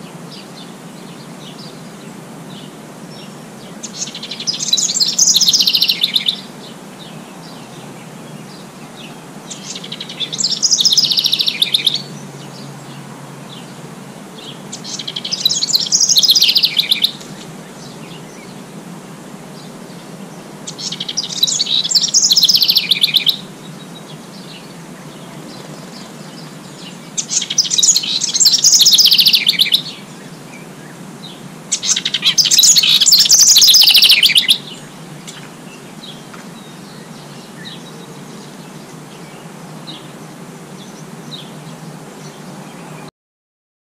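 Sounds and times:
faint bird chirps: 0:00.0 - 0:13.7, 0:20.7 - 0:40.1
songbird singing: 0:00.0 - 0:43.1.

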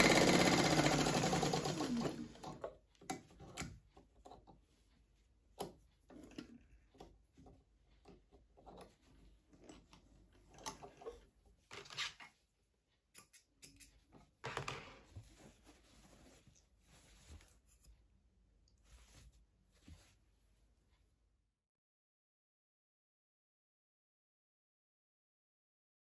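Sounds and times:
fabric rustling: 0:14.8 - 0:18.1, 0:18.7 - 0:21.0.

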